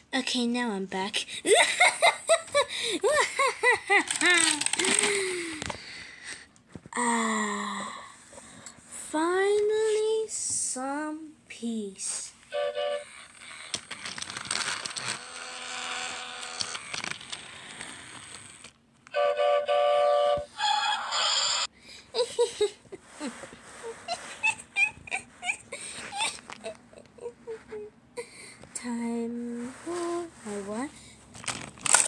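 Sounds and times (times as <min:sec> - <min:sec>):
steam train whistle: 0:12.5 - 0:13.1, 0:19.1 - 0:21.6.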